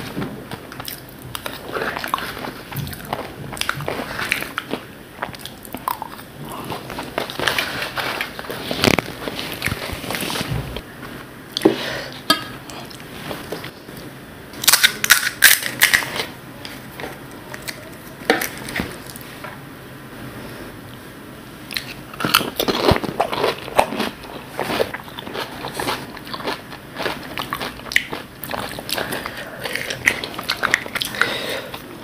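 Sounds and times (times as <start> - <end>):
soft chewing and handling noise: 0.0 - 14.1, 21.7 - 32.0.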